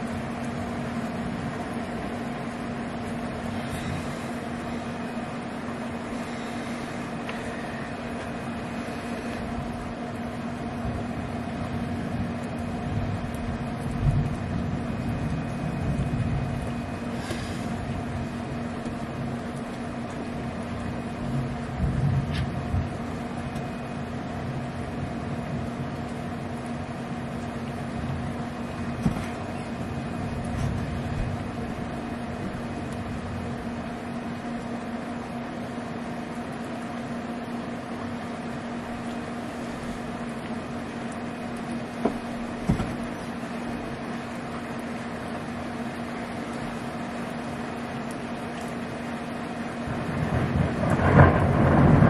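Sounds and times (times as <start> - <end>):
steady low hum: 0.0 - 52.0
distant thunder rumble: 9.3 - 33.8, 49.8 - 52.0.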